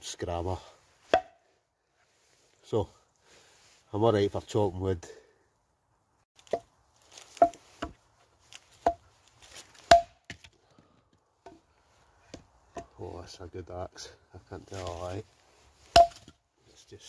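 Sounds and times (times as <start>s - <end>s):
axe chopping branches: 1.1s - 1.4s, 6.4s - 10.6s, 15.8s - 16.4s.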